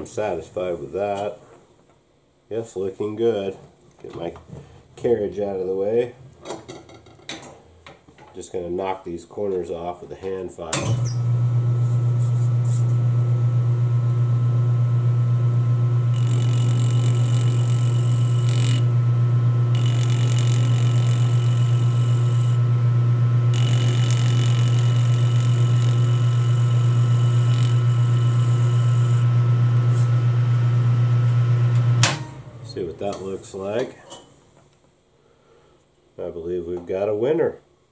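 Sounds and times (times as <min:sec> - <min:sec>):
metal lathe humming: 0:13.0 - 0:33.8
file scraping spinning metal: 0:16.1 - 0:19.0, 0:19.7 - 0:22.6, 0:23.5 - 0:29.3.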